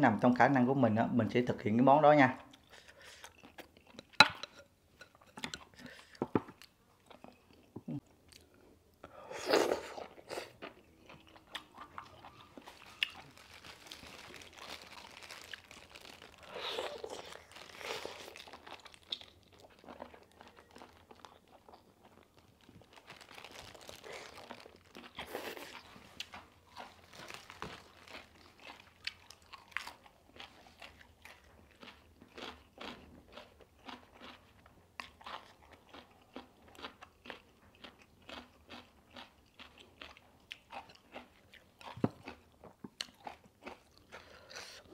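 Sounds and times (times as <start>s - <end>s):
crunchy chewing: 9.5s - 44.9s
wet chewing mouthfuls: 9.5s - 44.9s.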